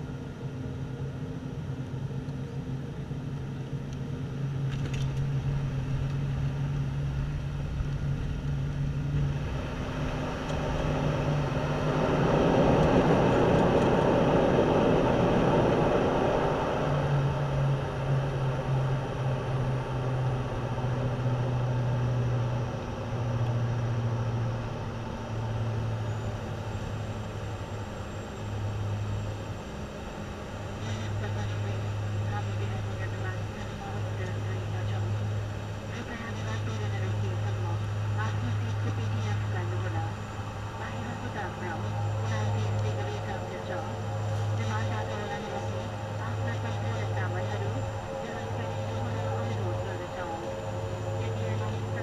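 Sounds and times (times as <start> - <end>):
propeller drone: 0.0 - 52.0
loud rushing roar: 9.3 - 27.9.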